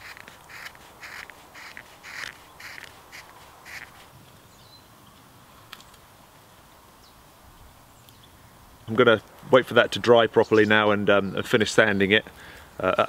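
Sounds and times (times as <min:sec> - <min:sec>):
blade scraping wooden spoon: 0:00.0 - 0:04.1.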